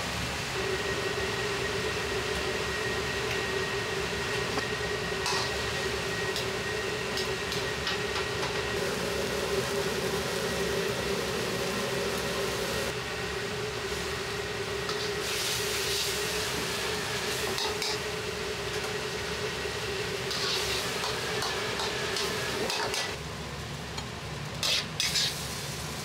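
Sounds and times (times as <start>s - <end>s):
gas burner and exhaust hood roar: 0.0s - 26.0s
sizzling hiss: 8.7s - 23.2s, 24.6s - 26.0s.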